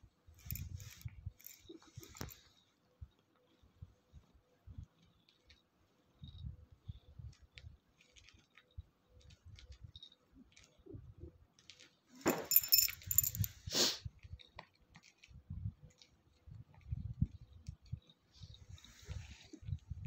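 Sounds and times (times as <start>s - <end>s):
cat collar jingling: 0.4s - 2.7s, 12.3s - 13.7s.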